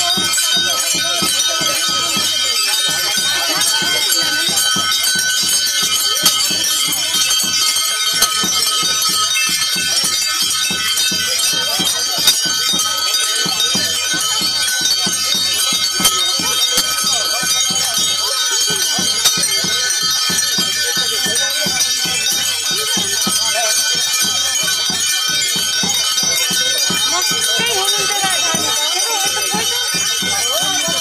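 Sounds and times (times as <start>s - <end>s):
bells and cymbals ringing: 0.0s - 31.0s
fast beat of knocks: 0.0s - 31.0s.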